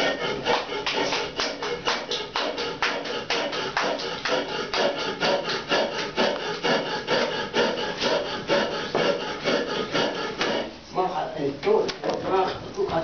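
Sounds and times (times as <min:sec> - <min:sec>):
rhythmic rasping hand grinding: 0:00.0 - 0:11.3.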